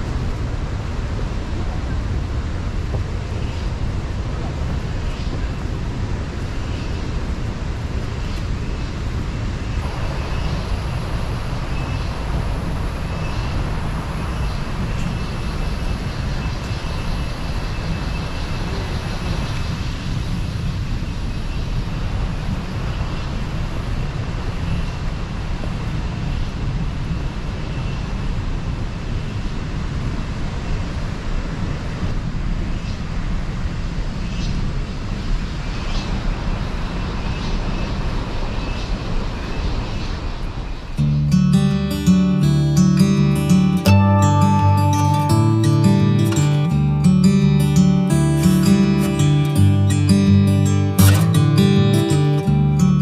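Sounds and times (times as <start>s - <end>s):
wind buffeting microphone: 0.0s - 41.0s.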